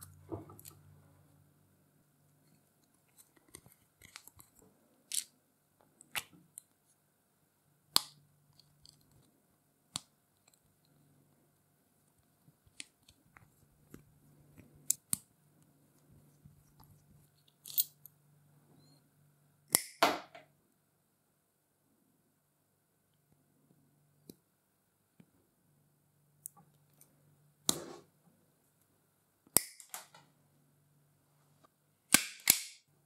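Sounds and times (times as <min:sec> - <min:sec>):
faint low hum: 0:00.0 - 0:19.7.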